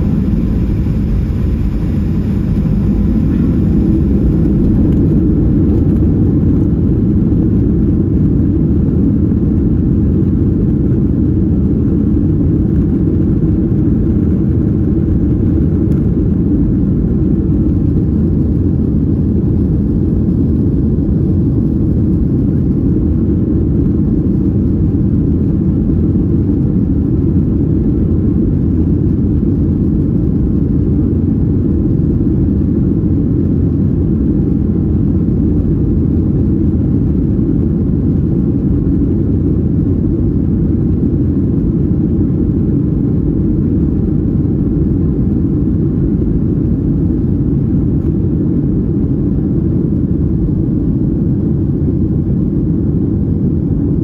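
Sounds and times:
vehicle rumbling in motion: 0.0s - 8.2s.

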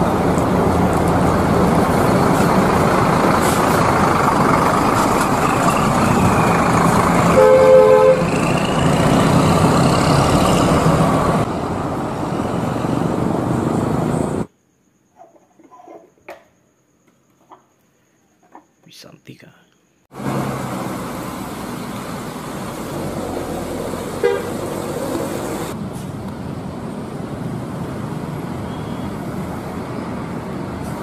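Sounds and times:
coach engine and vehicle noise: 0.0s - 14.5s, 20.1s - 31.0s
bus horn: 7.2s - 9.0s, 24.1s - 25.0s.

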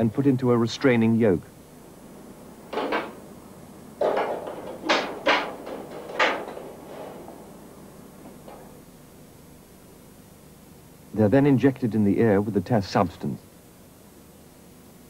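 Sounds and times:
knocks and clatters against metal: 1.9s - 8.9s.

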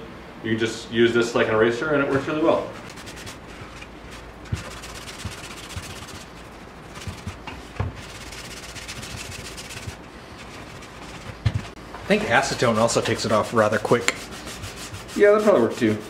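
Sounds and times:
rubber block scrubbing wood: 2.8s - 11.8s, 12.4s - 16.0s.

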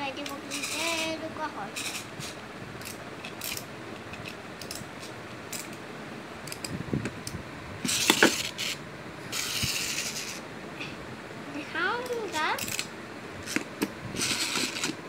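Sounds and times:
plastic toy pieces clicking: 0.2s - 0.8s
rasping rattle: 1.8s - 5.8s, 7.8s - 10.4s, 12.6s - 15.0s.

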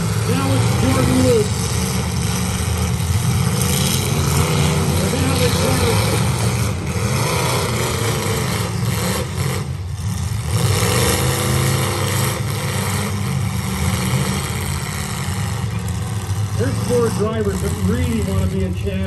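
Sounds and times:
car engines revving: 0.0s - 19.0s.

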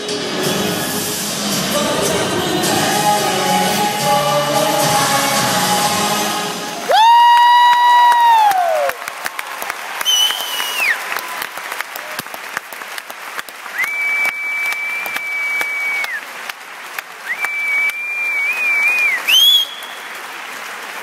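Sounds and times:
audience applauding: 6.7s - 21.0s
loud high whistling: 10.0s - 11.0s, 13.8s - 16.2s, 17.3s - 20.2s.

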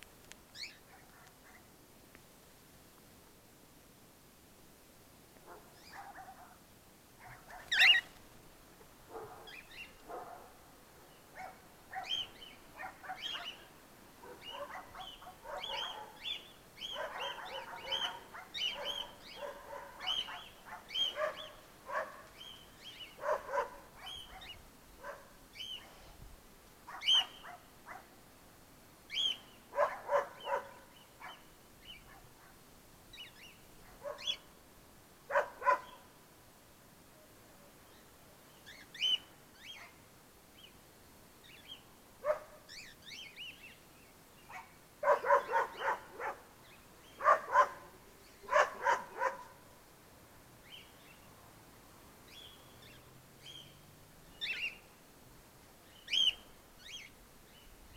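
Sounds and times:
cockatiels chirping and screeching: 7.6s - 8.1s.

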